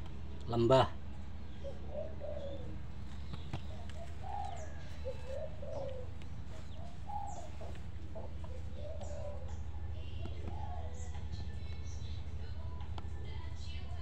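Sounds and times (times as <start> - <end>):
steady low hum: 0.0 - 14.0
short low bird calls: 1.7 - 9.5.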